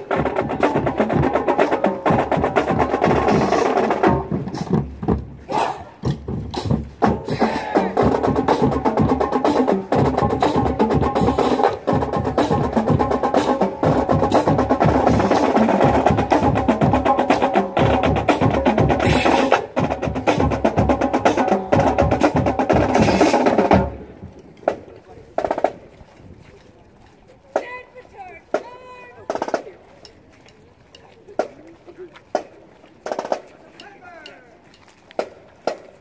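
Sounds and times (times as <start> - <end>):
wind instruments playing tune: 0.0 - 24.8
drumline beating: 0.0 - 25.9, 27.5 - 36.0.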